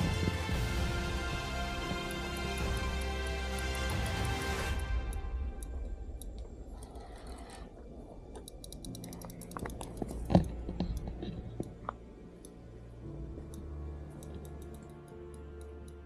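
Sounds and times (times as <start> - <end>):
fishing reel ratcheting clicks: 8.4 - 10.4.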